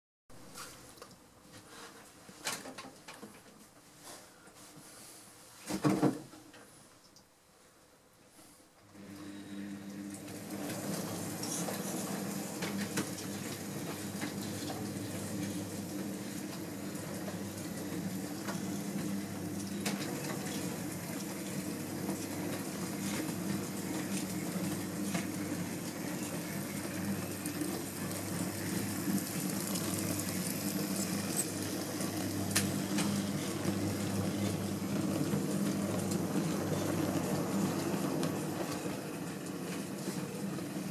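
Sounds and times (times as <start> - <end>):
model train motors humming: 9.0 - 40.9.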